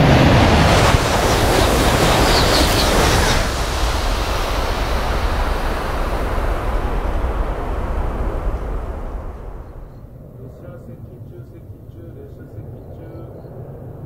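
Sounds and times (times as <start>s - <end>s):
high-speed train rushing past: 0.0s - 14.0s
high hiss: 0.4s - 10.2s.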